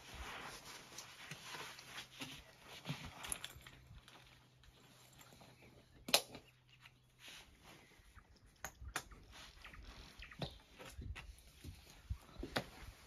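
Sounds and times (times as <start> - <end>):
backpack rustling: 0.0 - 5.7.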